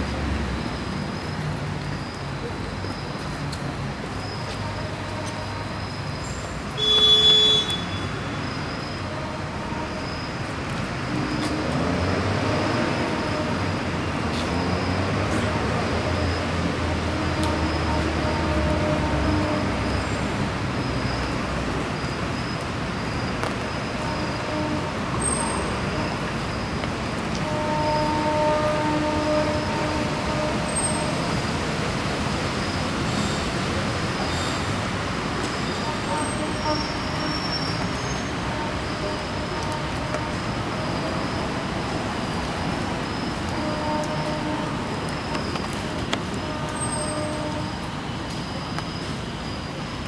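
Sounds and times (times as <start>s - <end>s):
city traffic noise: 0.0s - 50.0s
passing vehicles: 0.0s - 50.0s
car horn: 6.7s - 10.1s, 12.4s - 13.8s, 15.3s - 20.2s, 24.0s - 26.3s, 27.3s - 31.4s, 35.7s - 41.2s, 43.4s - 45.0s, 46.1s - 47.9s.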